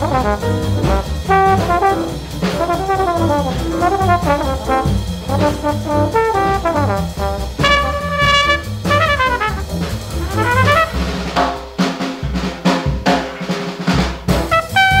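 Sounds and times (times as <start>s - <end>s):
drum hits: 0.0s - 15.0s
brass horn runs: 0.1s - 11.0s, 14.5s - 15.0s.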